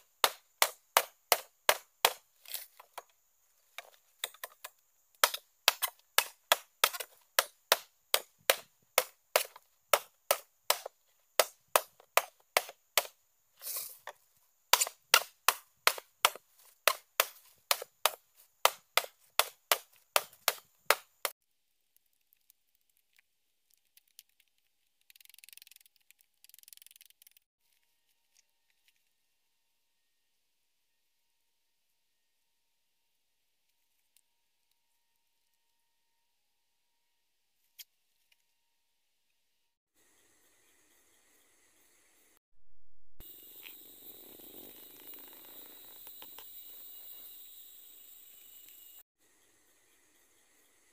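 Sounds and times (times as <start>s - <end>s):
blade chopping bamboo: 0.0s - 3.1s, 3.8s - 13.2s, 13.8s - 21.3s.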